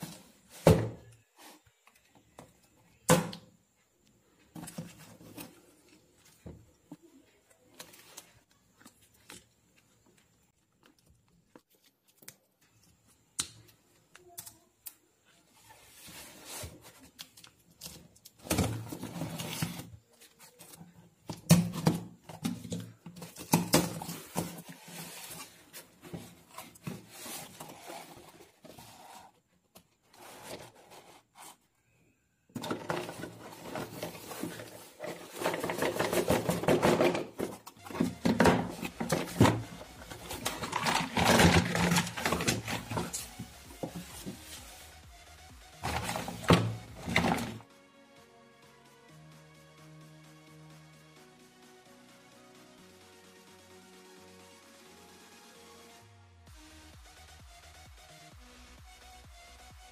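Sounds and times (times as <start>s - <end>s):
cardboard flaps rustling: 32.6s - 44.8s.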